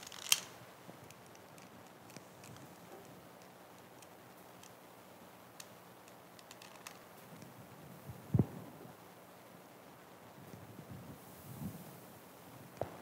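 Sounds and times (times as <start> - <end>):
faint handling clicks: 5.6 - 7.5.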